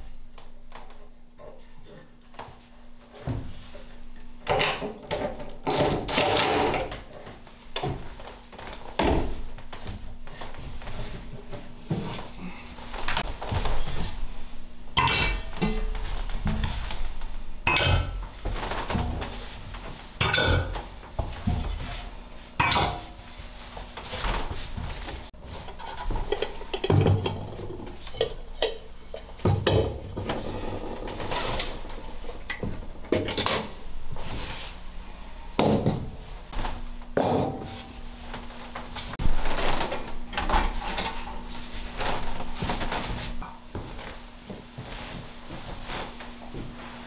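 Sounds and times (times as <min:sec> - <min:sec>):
pots and dishes clinking: 0:15.0 - 0:16.0, 0:17.6 - 0:18.2, 0:20.2 - 0:20.9, 0:22.6 - 0:23.2, 0:25.6 - 0:33.7.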